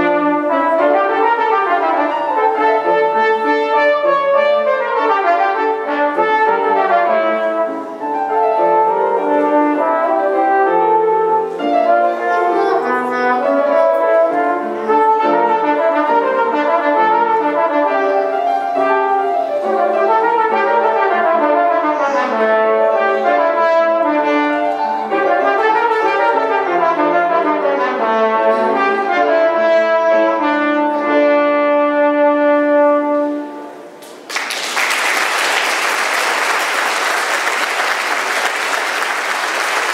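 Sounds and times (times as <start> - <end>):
brass ensemble playing: 0.0 - 34.0, 34.8 - 39.9
audience applause: 34.0 - 39.9.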